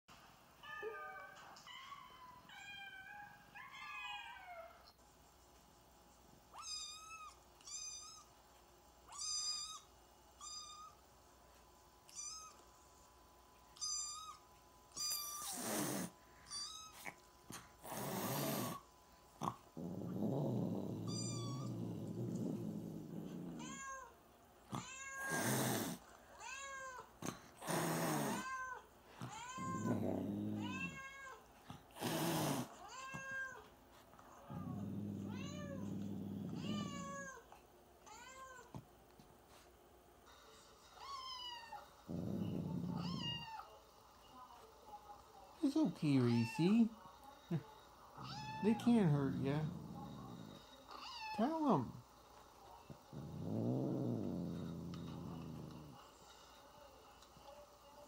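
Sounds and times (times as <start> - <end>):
low cat cry: 20.9 - 22.4, 27.6 - 31.4, 34.5 - 37.4
cats and kittens meowing: 21.0 - 21.9, 23.4 - 24.1, 24.7 - 27.1, 28.2 - 31.4, 34.5 - 37.4, 42.7 - 43.6.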